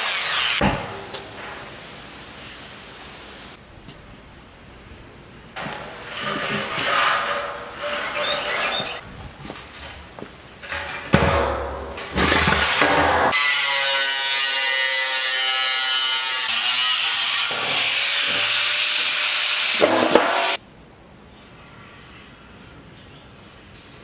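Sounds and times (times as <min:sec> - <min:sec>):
angle grinder cutting steel: 0:00.0 - 0:00.6, 0:13.3 - 0:20.6.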